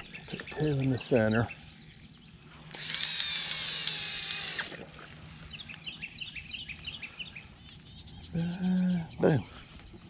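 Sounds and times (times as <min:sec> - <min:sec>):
bird chirping: 0:00.0 - 0:10.0
fishing line whirring off reel: 0:02.7 - 0:05.1.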